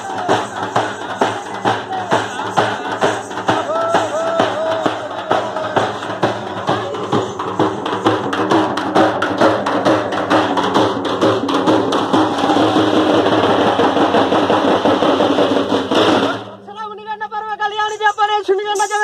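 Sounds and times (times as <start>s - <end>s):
frame drums beaten with sticks: 0.0s - 16.7s.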